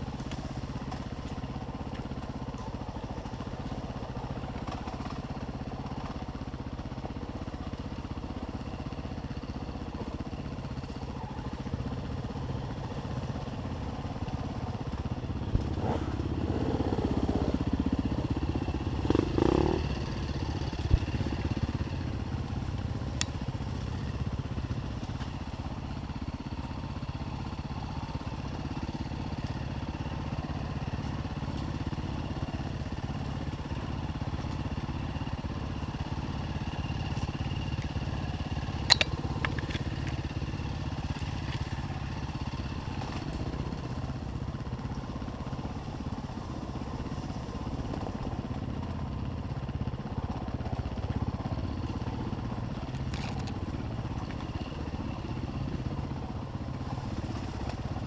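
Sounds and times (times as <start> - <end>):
knocks and clatter from bike: 0.1 - 6.4, 37.0 - 43.5
dirt bike engine revving: 19.0 - 20.0.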